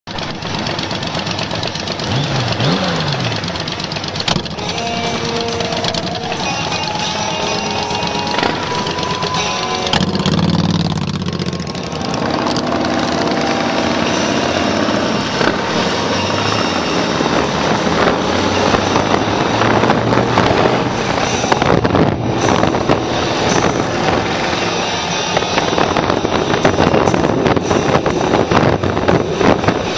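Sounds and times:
motorcycle engines accelerating: 0:00.1 - 0:29.9
wind noise on microphone: 0:14.8 - 0:29.9.

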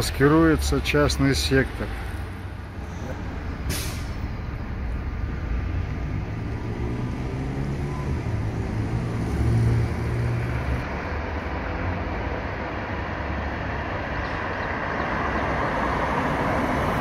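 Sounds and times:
cars passing: 0:00.0 - 0:17.0
vehicle passing close: 0:05.1 - 0:17.0.

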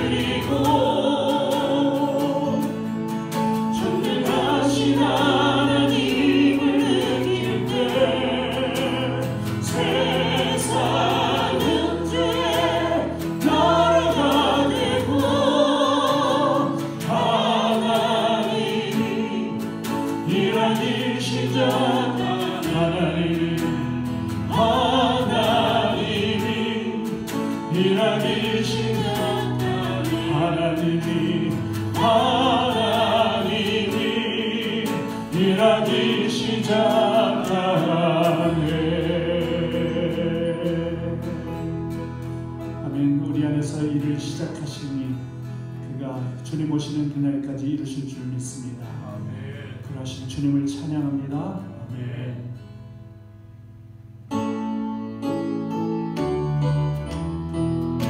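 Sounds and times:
choir singing: 0:00.0 - 0:41.9, 0:49.0 - 0:50.6
instrumental accompaniment: 0:00.0 - 0:47.2, 0:53.0 - 0:58.0.

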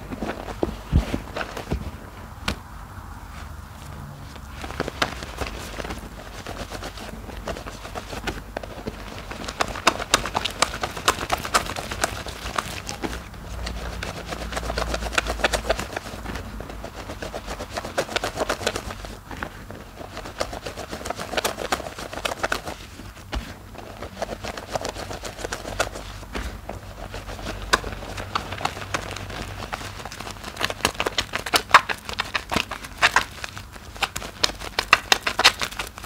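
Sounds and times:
soap foam squelching: 0:03.2 - 0:36.0
crackle of foam clicks: 0:27.6 - 0:36.0.

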